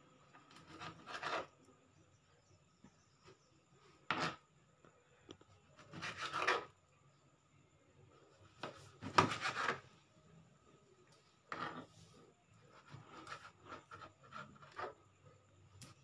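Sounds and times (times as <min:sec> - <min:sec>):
knife scraping cutting board: 0:00.4 - 0:01.6, 0:04.0 - 0:04.4, 0:05.8 - 0:06.8, 0:08.5 - 0:09.9, 0:11.4 - 0:15.1.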